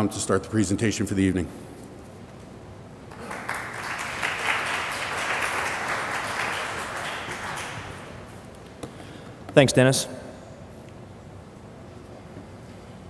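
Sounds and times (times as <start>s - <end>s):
audience applauding: 3.1s - 8.4s.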